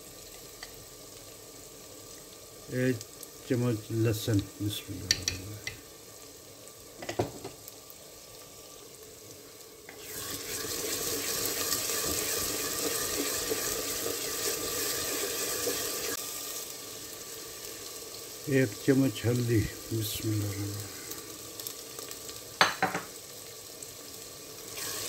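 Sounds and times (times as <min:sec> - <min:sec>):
onions frying in oil: 0:00.0 - 0:25.0
knock on clay pot: 0:22.6 - 0:23.1.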